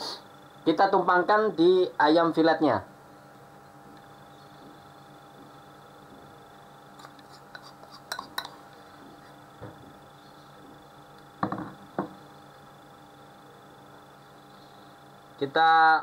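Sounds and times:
spoon clinking on ceramic bowl: 0:07.0 - 0:08.6.

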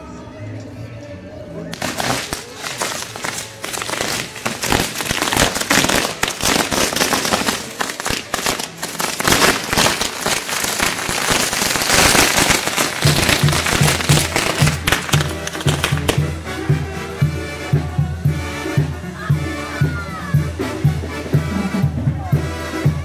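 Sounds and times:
firecrackers cracking and banging: 0:01.7 - 0:16.8
music with a steady beat: 0:01.7 - 0:23.0.

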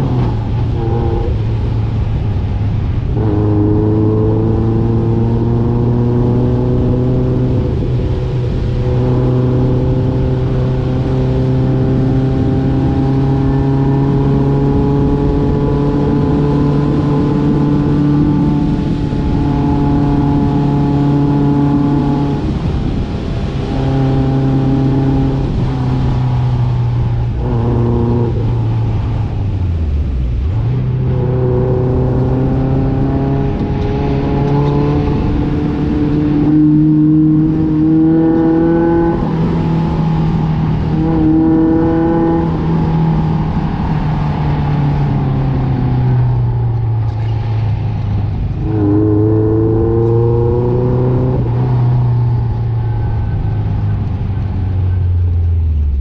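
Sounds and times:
off-road vehicle engine under load: 0:00.0 - 0:56.0.

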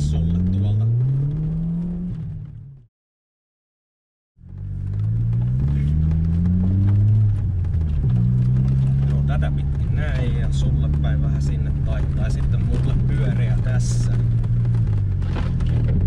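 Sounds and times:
car engine accelerating: 0:00.0 - 0:02.8, 0:04.4 - 0:16.0.

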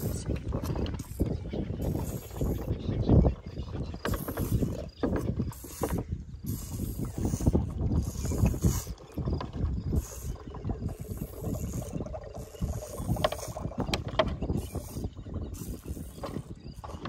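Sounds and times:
elephant sucking and gulping: 0:00.0 - 0:17.0
plastic bottle creaking and clicking: 0:04.0 - 0:06.0, 0:11.1 - 0:17.0.

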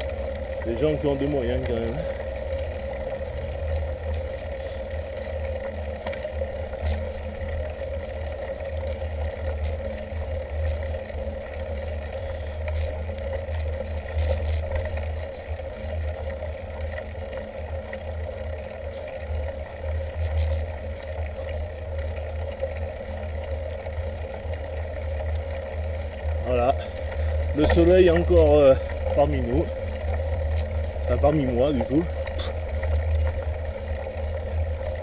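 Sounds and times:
bike tyres rumbling on tarmac: 0:00.0 - 0:35.0
faint even hum: 0:00.0 - 0:35.0
light regular ticks: 0:00.0 - 0:35.0.

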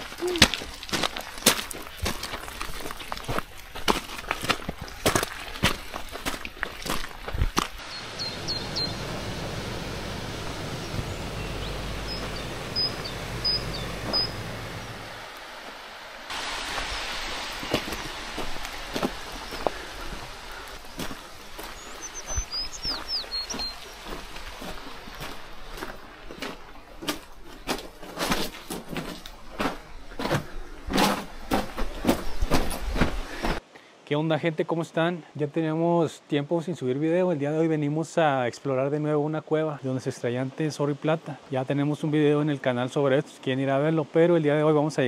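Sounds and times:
footsteps crunching on rough ground: 0:00.0 - 0:33.6.

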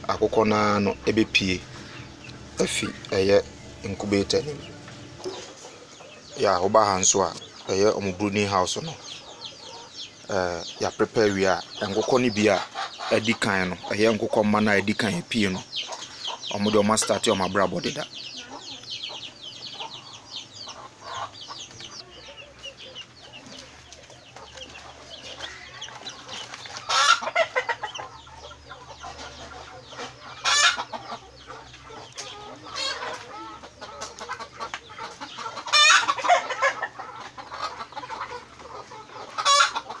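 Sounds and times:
chicks cheeping: 0:00.0 - 0:40.0
louder longer chick calls: 0:29.6 - 0:38.1.

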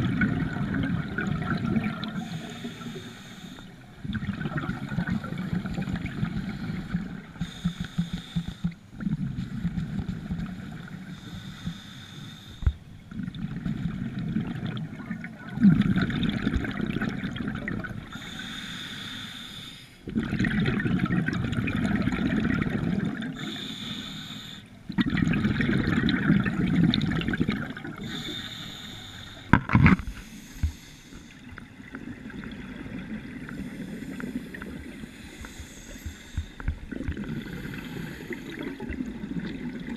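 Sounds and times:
exhaled bubbles burbling: 0:00.0 - 0:02.5, 0:04.0 - 0:07.4, 0:13.1 - 0:18.1, 0:20.0 - 0:23.4, 0:24.9 - 0:28.2, 0:31.8 - 0:35.4, 0:36.6 - 0:39.9
regulator hissing inhale: 0:02.2 - 0:03.8, 0:05.0 - 0:08.9, 0:09.8 - 0:12.8, 0:18.1 - 0:20.0, 0:23.3 - 0:24.8, 0:28.0 - 0:31.7, 0:33.5 - 0:39.0.

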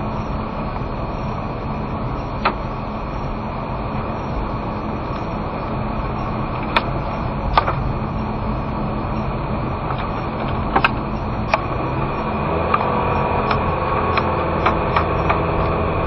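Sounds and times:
car engine and road noise: 0:00.0 - 0:16.0
sharp clicks or knocks: 0:07.5 - 0:07.9.

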